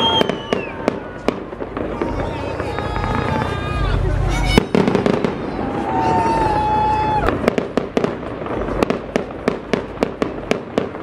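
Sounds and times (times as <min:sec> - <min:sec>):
high steady whistle: 0:00.0 - 0:01.1
fireworks bangs: 0:00.0 - 0:11.0.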